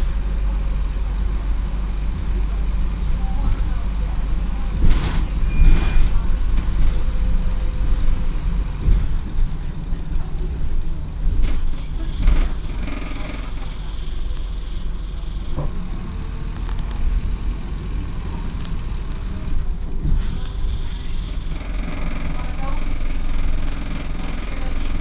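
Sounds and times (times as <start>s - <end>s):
bus engine and road rumble: 0.0s - 25.0s
fittings rattling: 11.4s - 15.6s, 21.1s - 25.0s.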